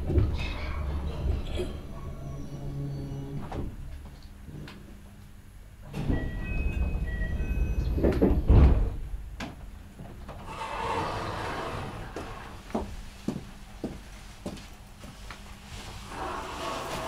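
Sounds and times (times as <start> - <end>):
sliding train doors rumbling: 0.0 - 5.0, 5.7 - 12.9, 15.9 - 17.0.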